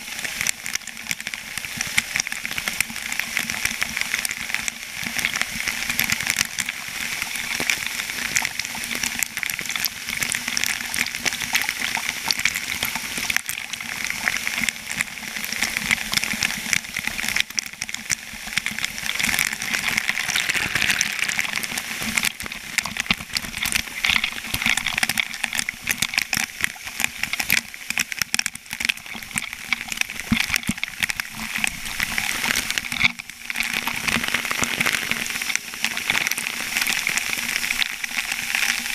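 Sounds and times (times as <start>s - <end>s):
water gushing and spraying: 0.0s - 38.9s.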